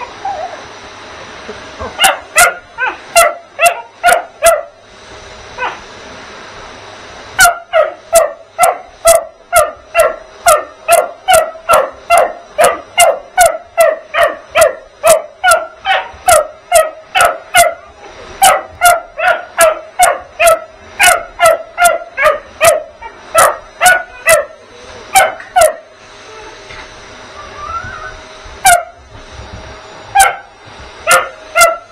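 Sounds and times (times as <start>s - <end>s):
vacuum cleaner motor humming: 0.0s - 31.9s
puppy barking: 2.0s - 4.8s, 5.6s - 5.8s, 7.4s - 25.9s, 28.6s - 29.0s, 30.2s - 30.5s, 31.1s - 31.9s.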